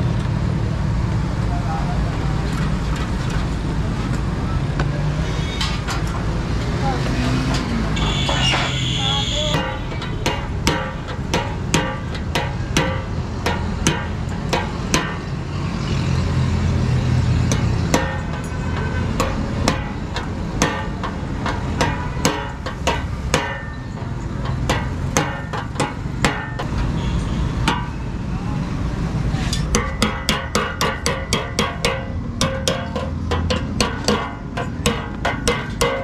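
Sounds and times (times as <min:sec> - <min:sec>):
hammer striking metal: 0:08.0 - 0:15.4, 0:17.4 - 0:26.9, 0:27.6 - 0:28.0, 0:29.5 - 0:36.0.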